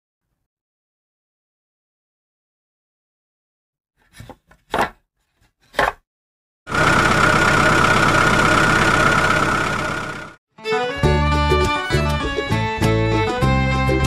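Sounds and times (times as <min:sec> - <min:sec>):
engine running with whine: 0:06.7 - 0:10.4.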